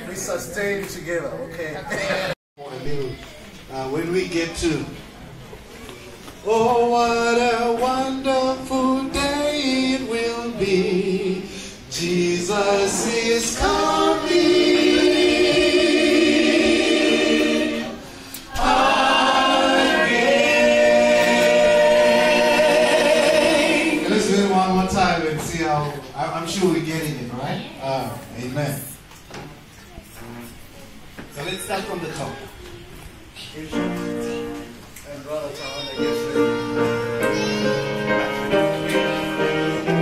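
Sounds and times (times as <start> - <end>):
singers on microphones: 6.4 - 24.7
congregation singing a hymn: 6.5 - 25.5, 36.1 - 40.0.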